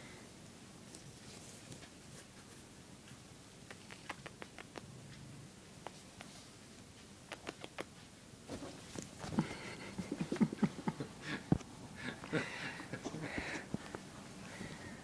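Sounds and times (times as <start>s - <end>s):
soft thumps and denim rustling: 8.5s - 9.6s.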